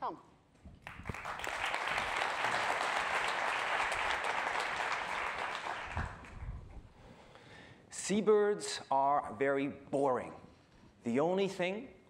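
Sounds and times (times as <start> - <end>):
audience applauding: 0.8 - 6.5.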